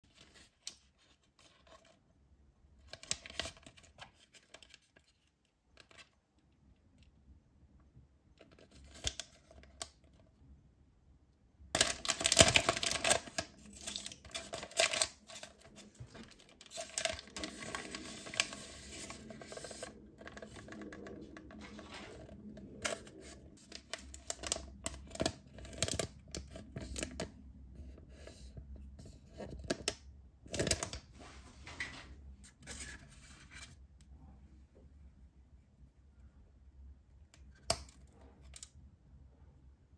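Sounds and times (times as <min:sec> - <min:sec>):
plastic wrapper crinkling: 0:11.8 - 0:27.2.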